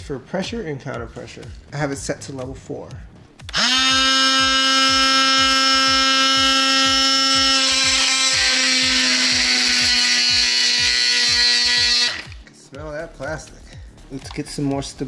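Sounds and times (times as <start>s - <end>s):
oscillating multi-tool buzzing whine: 3.5s - 12.5s.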